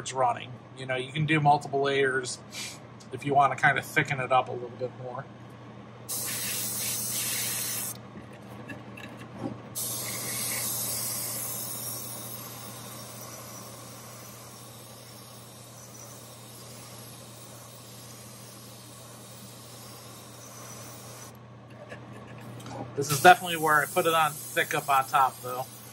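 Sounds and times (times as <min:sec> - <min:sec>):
airbrush spraying hiss: 0:06.1 - 0:08.0, 0:09.8 - 0:21.4, 0:23.0 - 0:25.9.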